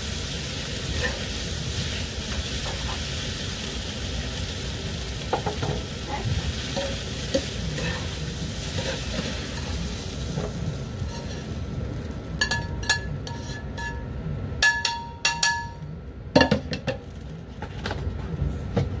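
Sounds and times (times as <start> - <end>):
metal tongs clinking on pan: 12.4 - 15.8.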